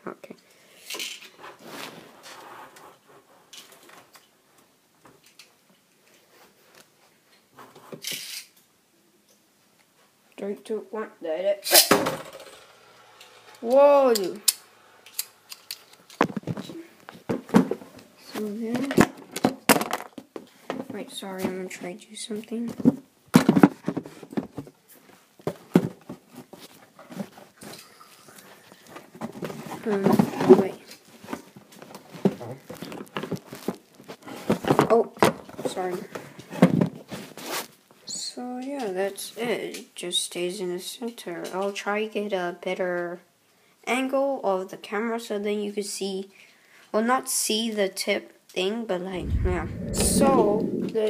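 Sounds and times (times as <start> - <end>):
spinning top: 11.6 - 16.2.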